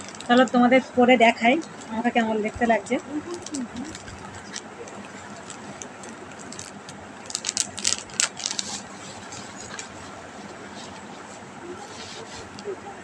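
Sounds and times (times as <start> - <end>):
earring packet clicks and crinkles: 0.0 - 0.6, 2.8 - 8.9.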